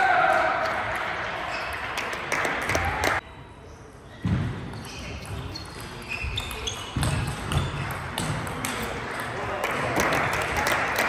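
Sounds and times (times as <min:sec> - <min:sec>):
shoe squeaks on floor: 0:04.0 - 0:08.1.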